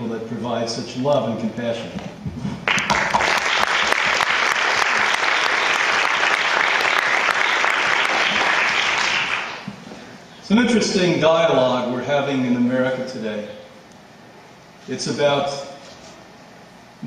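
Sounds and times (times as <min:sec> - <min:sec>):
audience applauding: 0:02.6 - 0:09.7.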